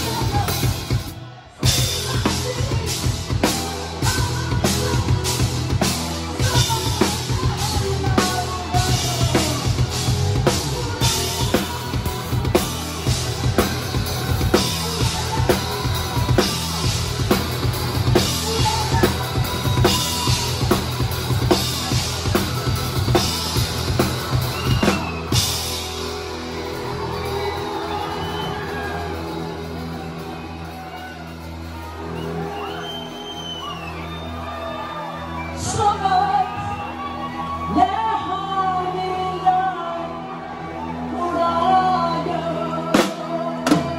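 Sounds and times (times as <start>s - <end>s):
drum kit beat: 0.0s - 30.9s
bass and guitar: 0.0s - 43.9s.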